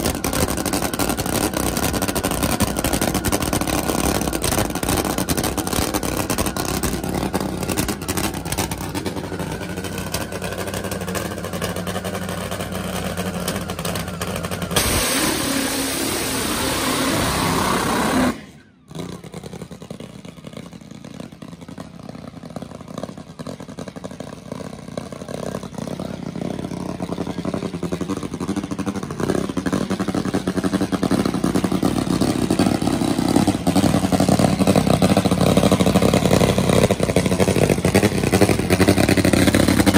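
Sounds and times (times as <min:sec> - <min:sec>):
drag bike engine: 0:00.0 - 0:39.9
quieter engine: 0:00.0 - 0:39.9.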